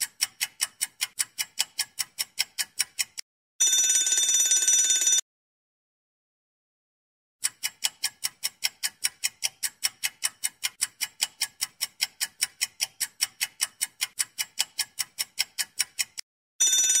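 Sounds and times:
clock ticking: 0.0s - 3.9s, 7.4s - 17.0s.

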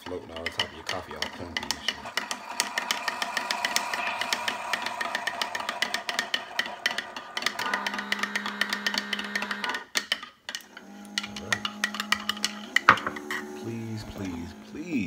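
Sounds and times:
steady hum: 1.4s - 9.7s.

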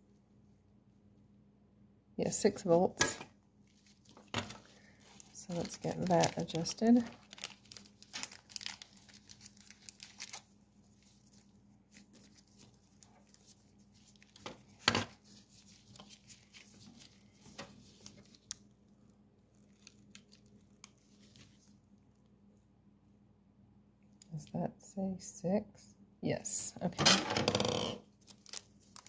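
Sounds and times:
wrapping crinkling and rustling: 3.6s - 22.2s, 27.4s - 29.0s.

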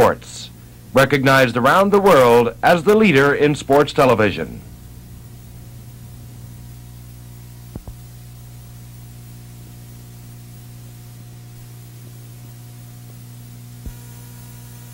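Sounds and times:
electrical hum: 0.0s - 14.9s
tape hiss: 0.0s - 14.9s.

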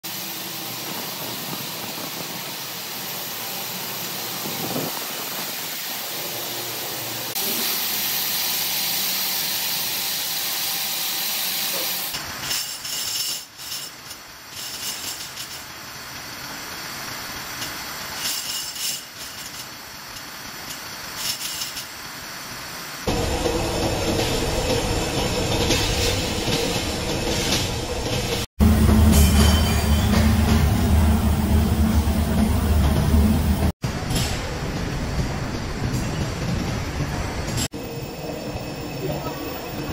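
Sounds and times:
machine hiss: 0.0s - 39.8s
metal parts knocking and clattering: 12.2s - 16.3s, 17.5s - 22.0s.

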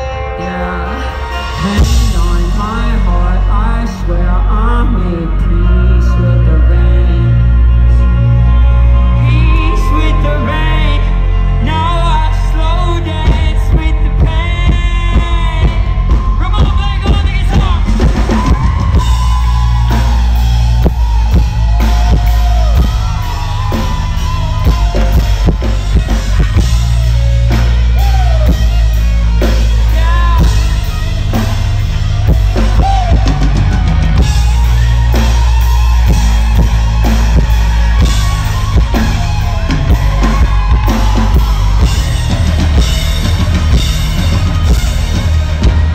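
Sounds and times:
electric guitar with bending notes: 0.0s - 45.9s
heavy bass: 0.0s - 45.9s
drum kit beat: 1.4s - 3.2s, 12.8s - 45.9s.

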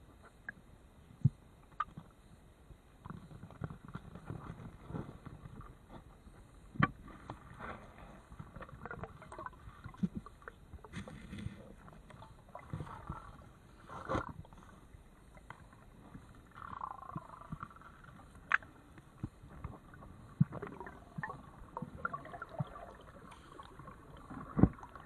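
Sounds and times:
underwater clicks and knocks: 1.2s - 2.1s, 6.7s - 7.5s, 15.3s - 25.0s
swirling water noise: 19.7s - 25.0s.

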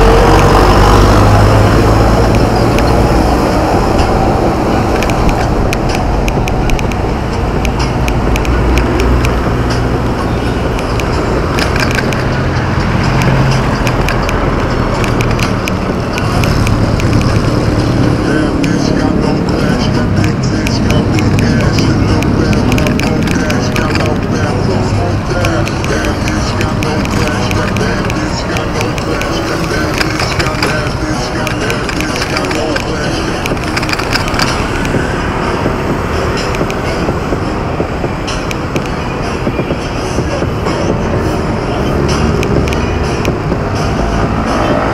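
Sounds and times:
wind: 0.0s - 44.9s
rattling clicks: 10.6s - 18.8s, 19.7s - 35.0s.

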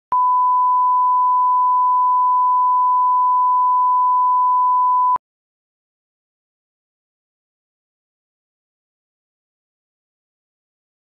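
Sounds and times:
steady test tone beep: 0.1s - 5.2s.

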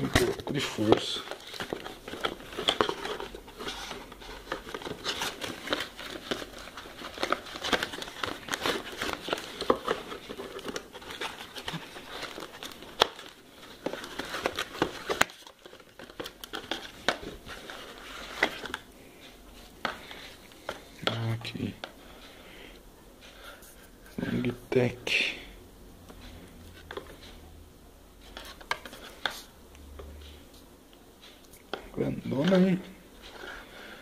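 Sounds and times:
cardboard rustling and crinkling: 0.0s - 22.0s, 28.4s - 29.5s.

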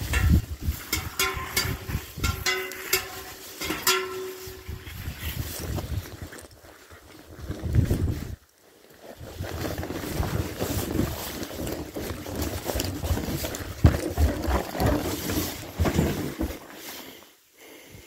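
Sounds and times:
footsteps in snow: 3.1s - 17.2s
wind buffeting microphone: 4.5s - 6.3s, 7.3s - 8.4s.

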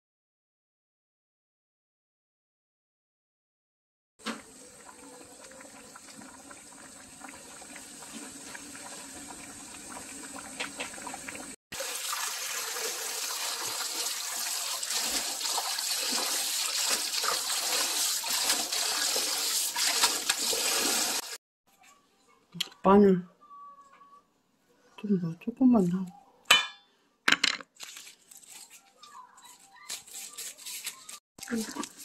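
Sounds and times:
water bubbling in a pot: 4.3s - 21.4s.

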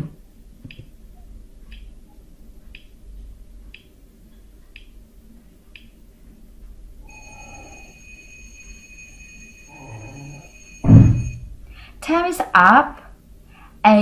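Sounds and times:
steady high ringing tone: 7.0s - 11.9s.

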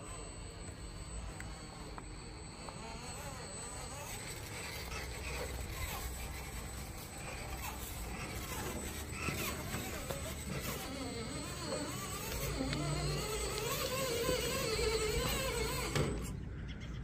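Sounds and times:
rc car motor and drivetrain: 0.0s - 17.0s.

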